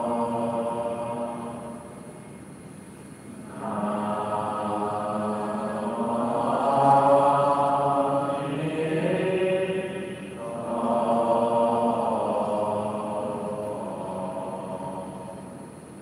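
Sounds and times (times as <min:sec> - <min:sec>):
slow devotional chanting: 0:00.0 - 0:16.0.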